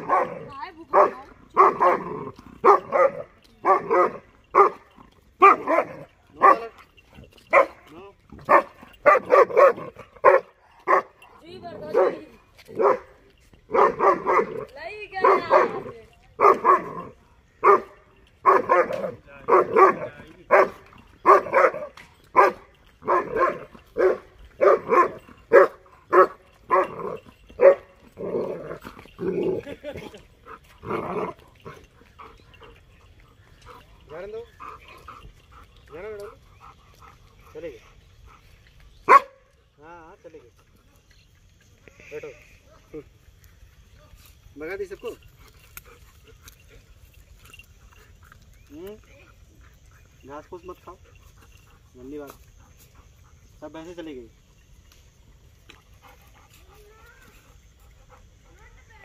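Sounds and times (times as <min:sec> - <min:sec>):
dog barking: 0:00.0 - 0:04.8, 0:05.4 - 0:06.7, 0:07.5 - 0:07.8, 0:08.4 - 0:11.2, 0:11.8 - 0:13.1, 0:13.7 - 0:27.9, 0:39.1 - 0:39.4.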